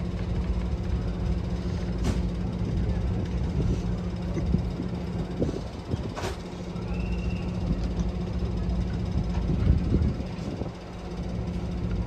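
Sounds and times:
diesel train engine droning: 0.0s - 12.0s
brief high squeal: 6.8s - 7.6s.

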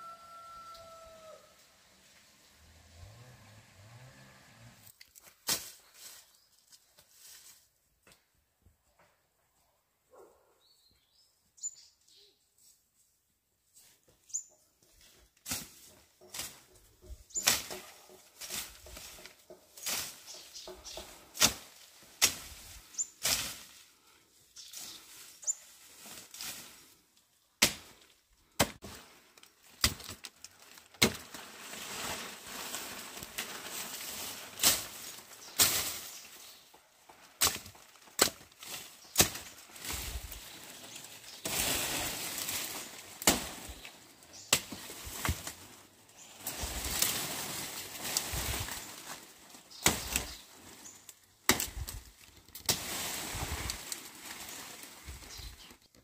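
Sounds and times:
bird chirps: 10.6s - 12.4s
scraping and rustling: 30.1s - 51.1s.

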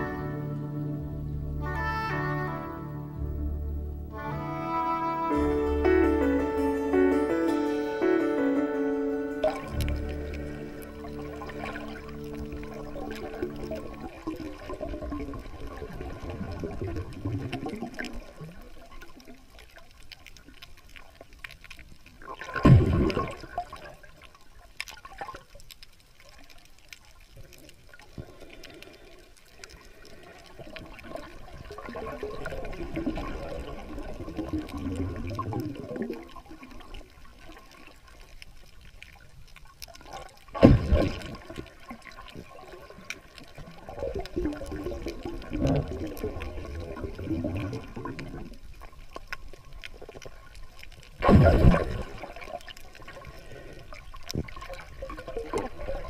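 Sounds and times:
muffled underwater water sloshing: 9.4s - 56.0s.

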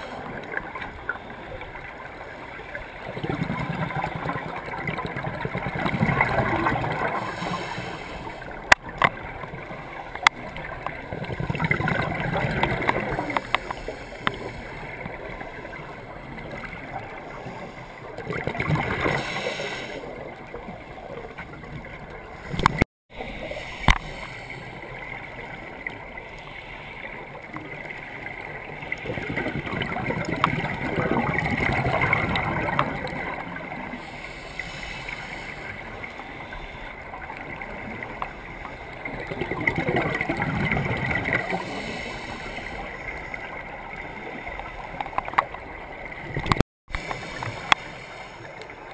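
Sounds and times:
muffled underwater noise: 0.0s - 48.9s.

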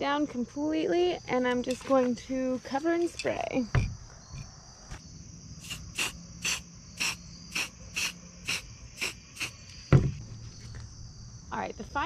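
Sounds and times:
crickets chirping: 0.0s - 12.0s
spray can hissing bursts: 5.6s - 9.7s.

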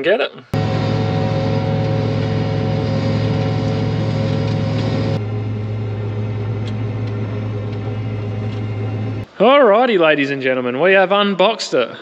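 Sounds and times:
combine harvester engine hum: 0.6s - 9.3s.

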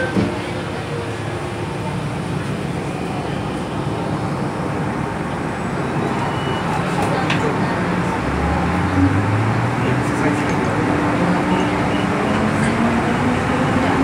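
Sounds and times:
train carriage rumble and hiss: 0.0s - 14.0s.

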